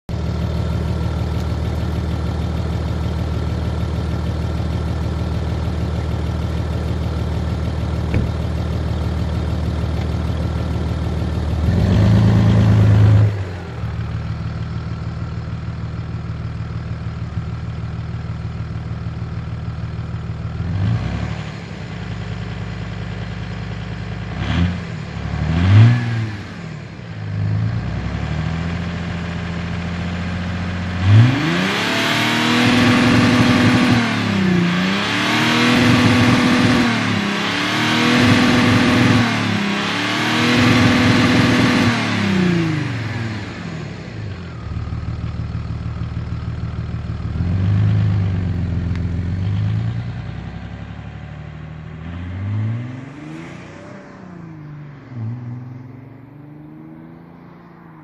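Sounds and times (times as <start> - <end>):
diesel engine idling and revving: 0.1 - 58.0.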